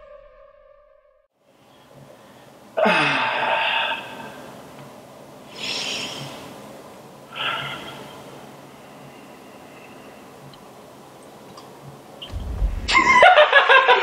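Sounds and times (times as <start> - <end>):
man breathing heavily: 5.5 - 6.6, 7.3 - 10.5.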